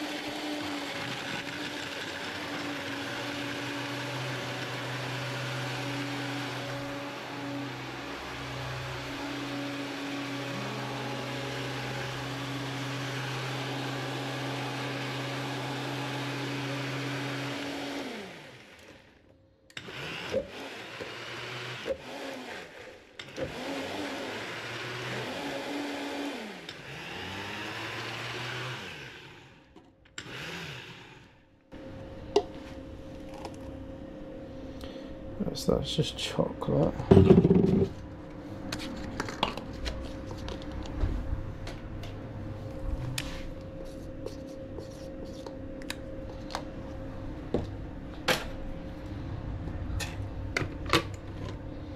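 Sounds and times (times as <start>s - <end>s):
blender motor running: 0.0s - 31.4s.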